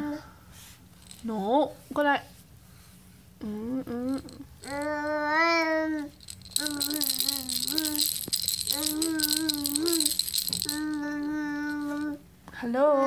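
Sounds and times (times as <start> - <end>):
rattle toy shaken: 1.0 - 1.4, 4.0 - 5.1, 6.0 - 12.2.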